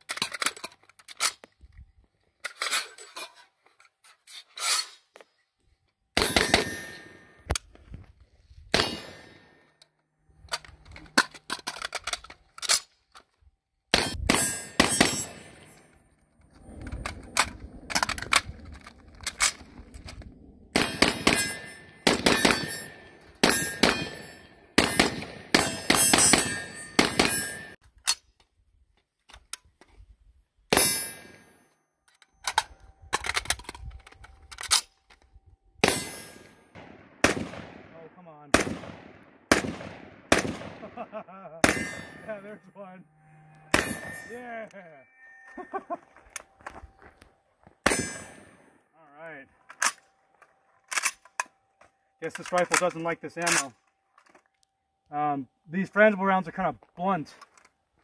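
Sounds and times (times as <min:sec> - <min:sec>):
ring of steel targets: 0:06.2 - 0:07.5, 0:08.8 - 0:09.7, 0:13.9 - 0:16.0, 0:20.7 - 0:27.8, 0:30.7 - 0:33.2, 0:35.8 - 0:37.4, 0:41.6 - 0:46.7, 0:47.8 - 0:48.8
rifle shots: 0:08.7 - 0:09.5, 0:13.9 - 0:15.7, 0:20.7 - 0:27.8, 0:35.8 - 0:42.3.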